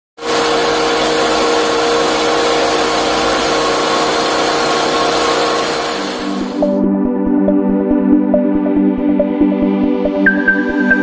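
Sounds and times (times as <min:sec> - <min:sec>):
rice pouring into metal bucket: 0:00.2 - 0:06.6
rice mill running: 0:00.2 - 0:06.8.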